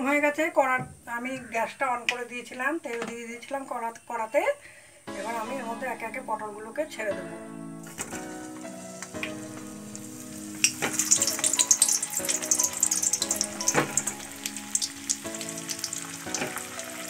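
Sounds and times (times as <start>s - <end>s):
vegetables sizzling in hot oil: 7.8s - 17.0s.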